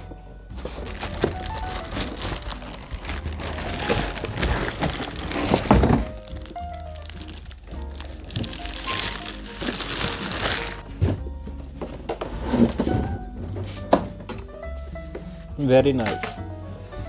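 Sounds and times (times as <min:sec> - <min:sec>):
background music: 0:00.0 - 0:17.0
cardboard and plastic bag rustling: 0:00.6 - 0:17.0
heavy thud on wooden table: 0:05.5 - 0:06.2.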